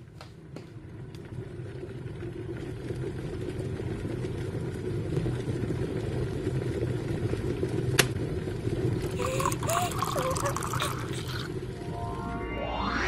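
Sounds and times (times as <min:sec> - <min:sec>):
kettle heating water: 0:00.0 - 0:12.2.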